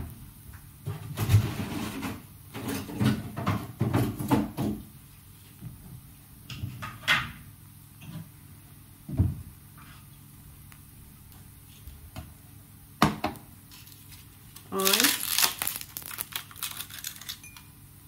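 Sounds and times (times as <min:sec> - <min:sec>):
glass and ice clinking: 0:17.1 - 0:17.7.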